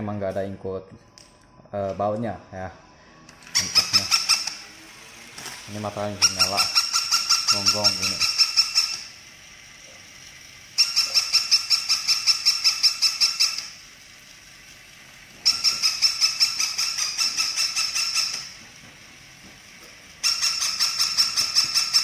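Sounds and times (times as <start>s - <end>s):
toy dog electronic yapping: 3.4s - 4.8s, 5.4s - 9.3s, 10.6s - 13.8s, 15.4s - 18.6s, 20.2s - 22.0s.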